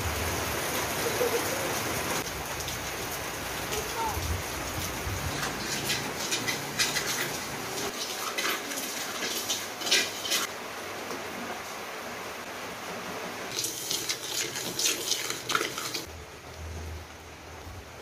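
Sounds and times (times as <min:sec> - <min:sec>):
rice scraped around a wok: 0:07.9 - 0:10.5.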